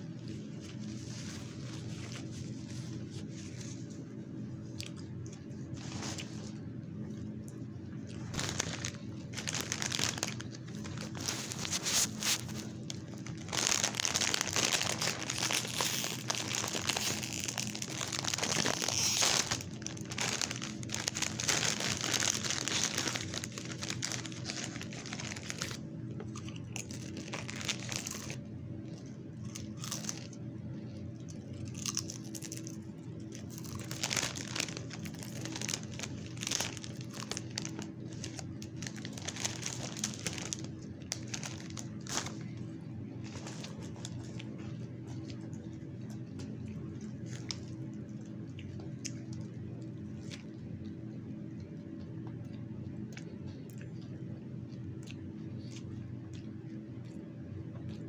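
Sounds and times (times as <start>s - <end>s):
faint steady hum: 0.0s - 58.0s
food wrapper crinkling: 5.7s - 6.6s, 8.1s - 30.4s, 31.4s - 49.4s.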